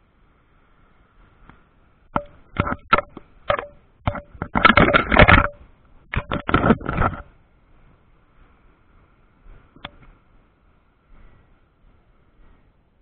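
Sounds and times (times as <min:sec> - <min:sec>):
knocks and scraping from fishing rod: 0:02.1 - 0:07.4, 0:09.6 - 0:10.2.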